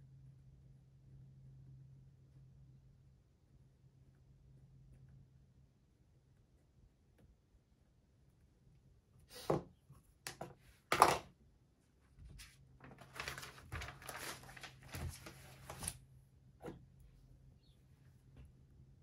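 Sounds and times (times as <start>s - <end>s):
objects knocking on wooden desk: 10.3s - 11.2s
paper rustling: 12.2s - 16.0s.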